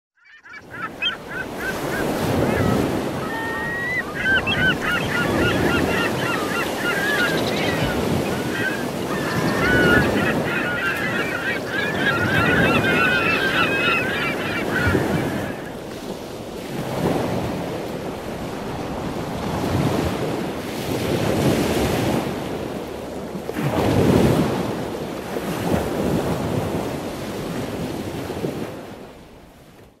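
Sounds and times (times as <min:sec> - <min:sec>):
gulls calling: 0:00.2 - 0:15.9
ocean surf breaking on beach: 0:00.6 - 0:29.5.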